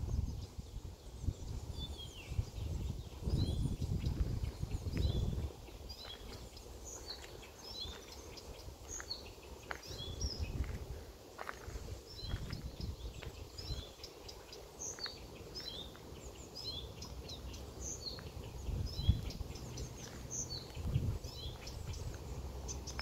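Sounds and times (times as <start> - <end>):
warbler singing: 0.0 - 23.0
low rumbling noise: 15.4 - 23.0.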